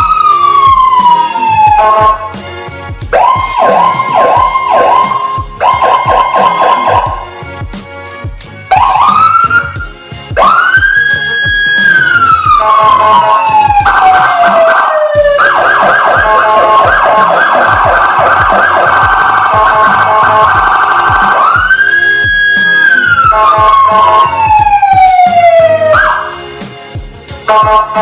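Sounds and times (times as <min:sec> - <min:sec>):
electronic siren switching tones: 0:00.0 - 0:02.3, 0:03.1 - 0:07.2, 0:08.7 - 0:26.3.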